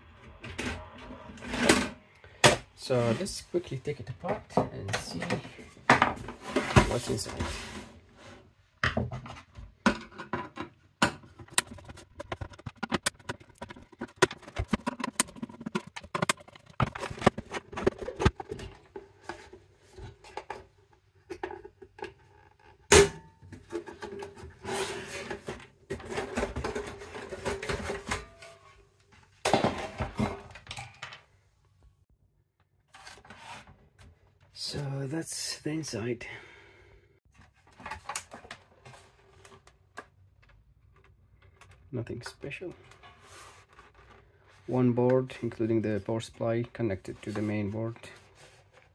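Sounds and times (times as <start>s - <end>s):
plastic and metal clicks and knocks: 8.8s - 18.9s.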